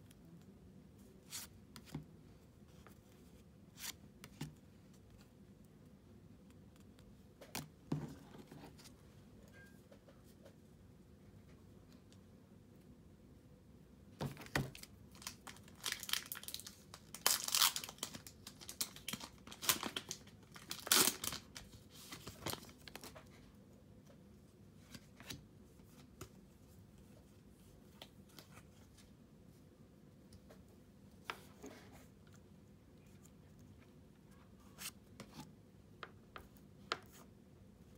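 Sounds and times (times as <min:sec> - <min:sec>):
foil wrapper crinkling and tearing: 0:15.1 - 0:21.6.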